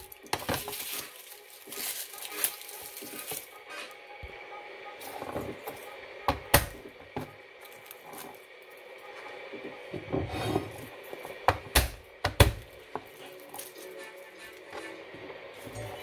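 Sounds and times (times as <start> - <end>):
soft rubbing and scraping: 9.1 - 11.4.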